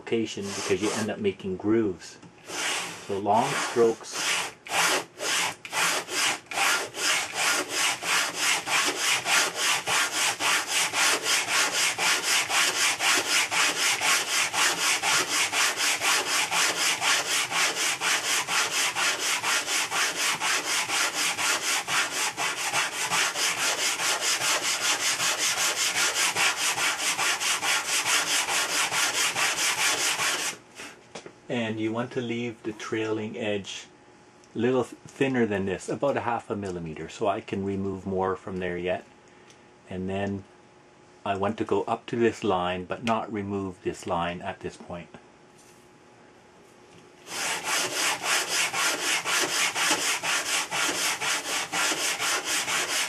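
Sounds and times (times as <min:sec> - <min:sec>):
sandpaper sanding wood: 0:00.4 - 0:01.2, 0:02.4 - 0:30.6, 0:47.2 - 0:53.0.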